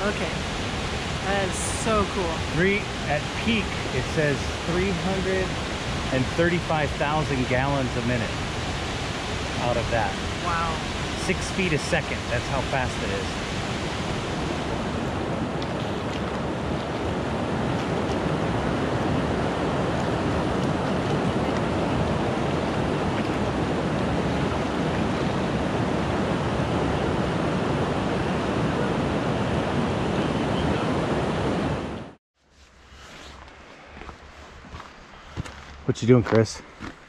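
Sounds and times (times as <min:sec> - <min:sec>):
river water rushing over gravel: 0:00.0 - 0:25.9.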